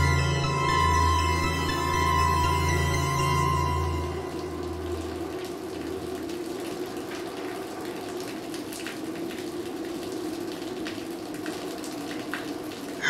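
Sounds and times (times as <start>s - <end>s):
dark ambient drone: 0.0s - 7.2s.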